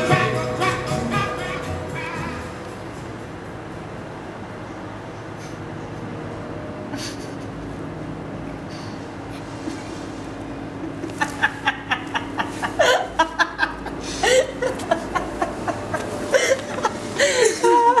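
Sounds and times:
low background hum: 0:00.0 - 0:18.0
people laughing: 0:10.8 - 0:18.0.

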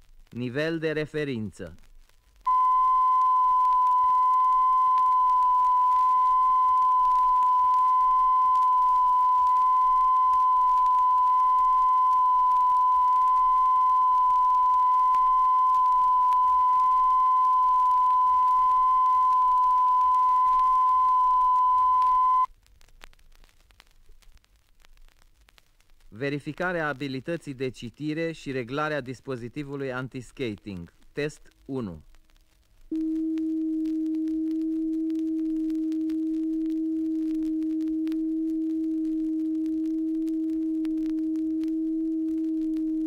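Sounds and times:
record surface noise: 0:00.0 - 0:43.0
vinyl record clicks: 0:01.4 - 0:43.0
steady test tone: 0:02.5 - 0:22.5, 0:32.9 - 0:43.0.

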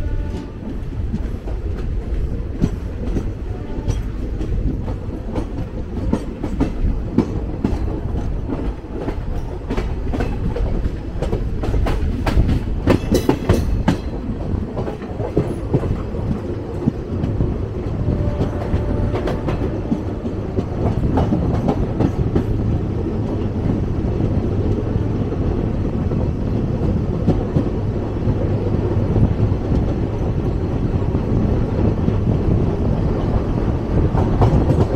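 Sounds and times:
train wheels rumbling on rails: 0:00.0 - 0:34.9
wheels clacking over rail joints: 0:00.1 - 0:24.9.

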